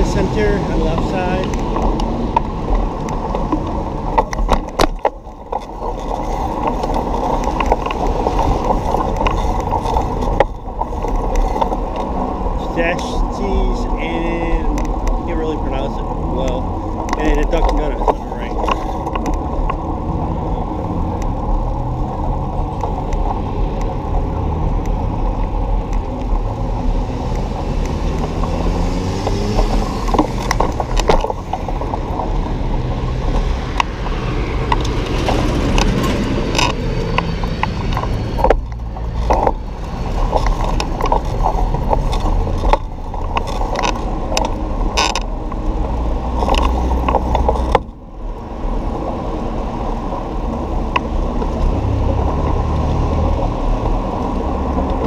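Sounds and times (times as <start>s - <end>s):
bike clattering over bumps: 0.0s - 19.9s, 28.0s - 45.6s
bicycle rolling rumble: 0.0s - 55.0s
cars passing: 0.0s - 55.0s.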